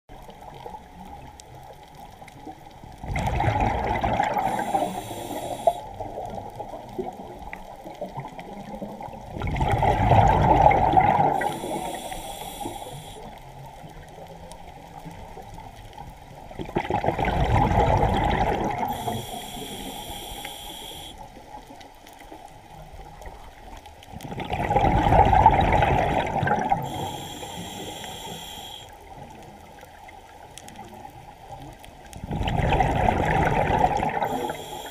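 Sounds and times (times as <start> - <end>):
exhaled bubbles rushing underwater: 0.1 - 14.1, 14.7 - 21.9, 22.6 - 30.1, 30.7 - 34.9
regulator inhale hiss: 4.2 - 6.0, 11.1 - 13.4, 18.8 - 21.3, 26.8 - 29.0, 34.2 - 34.9.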